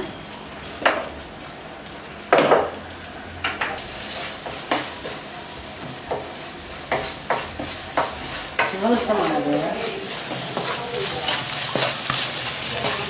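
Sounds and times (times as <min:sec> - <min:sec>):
onions sizzling in oil: 0:00.0 - 0:13.0
wooden spatula scraping a pan: 0:06.2 - 0:13.0.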